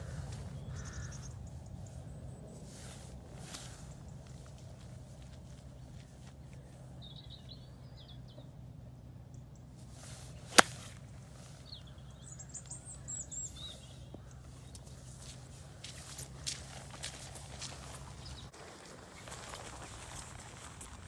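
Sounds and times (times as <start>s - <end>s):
birds chirping: 0.0s - 20.3s
golf club striking ball: 10.4s - 11.0s.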